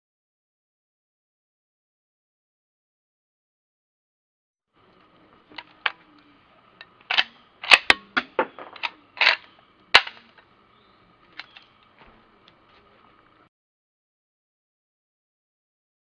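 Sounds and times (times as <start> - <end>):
rifle lever action clicking: 6.8 - 10.4.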